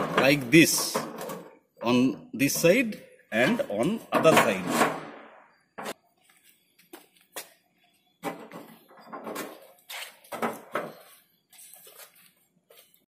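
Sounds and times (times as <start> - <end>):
light metal knocks and scrapes: 0.0 - 3.0, 8.2 - 11.9.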